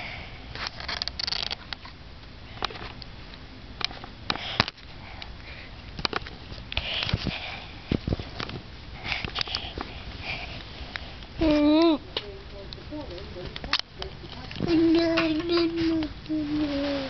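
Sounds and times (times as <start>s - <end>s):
child sniffing and breathing: 4.3s - 5.8s, 6.7s - 8.0s, 8.9s - 11.2s.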